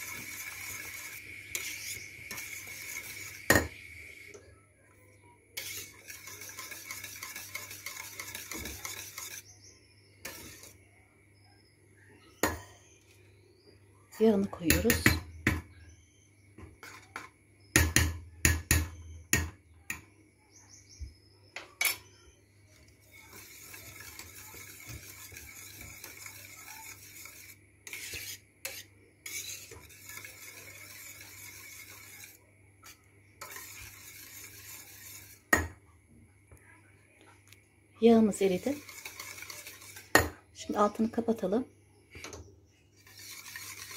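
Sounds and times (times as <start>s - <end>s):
wire whisk scraping a metal pot: 0.0s - 4.2s, 5.6s - 10.8s, 22.8s - 35.7s, 38.3s - 40.3s, 43.0s - 43.9s
metallic knocks against a pot: 17.7s - 20.1s.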